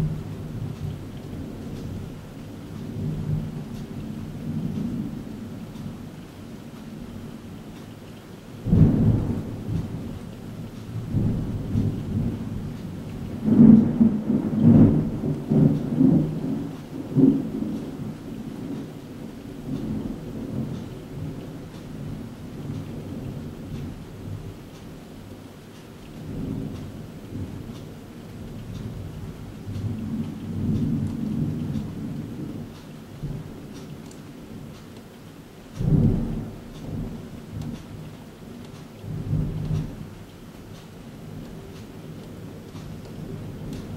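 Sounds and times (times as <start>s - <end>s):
thunder rumbling: 0.0s - 7.4s, 8.6s - 25.4s, 26.1s - 34.8s, 35.7s - 40.2s
steady rain: 0.0s - 43.9s.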